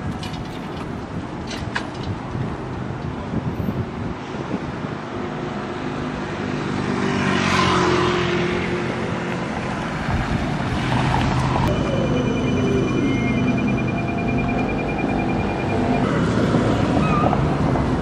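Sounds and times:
traffic hum: 0:00.0 - 0:18.0.

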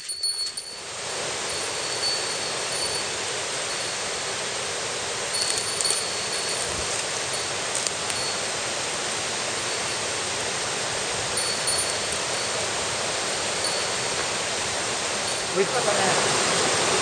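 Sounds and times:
high ringing tone: 0:00.0 - 0:04.2, 0:05.2 - 0:08.7, 0:11.3 - 0:14.4
rushing mountain stream: 0:00.0 - 0:17.0.

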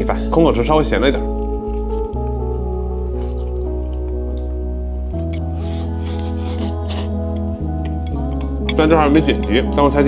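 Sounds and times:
background music with held notes: 0:00.0 - 0:10.0
slurping noodles: 0:05.4 - 0:07.3.

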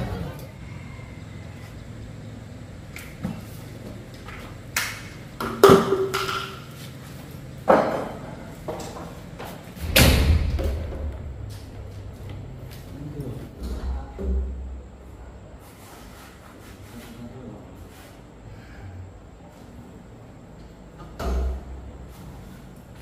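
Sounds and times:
sharp knocks and thuds: 0:09.8 - 0:12.9.

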